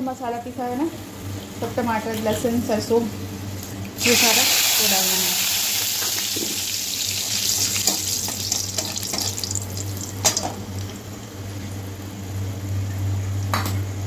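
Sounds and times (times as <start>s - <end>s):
seeds sizzling in hot oil: 4.0s - 11.0s.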